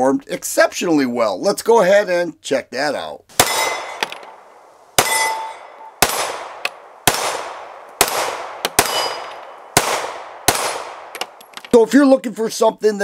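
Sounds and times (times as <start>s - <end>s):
steel targets ringing: 3.4s - 4.3s, 5.0s - 6.3s, 8.8s - 9.6s
pistol shots echoing: 3.4s - 11.5s.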